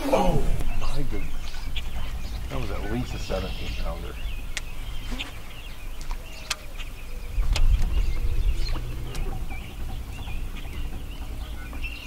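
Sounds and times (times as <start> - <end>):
low rumble: 0.0 - 12.0
songbirds chirping: 0.0 - 12.0
sharp clicks: 6.0 - 7.9.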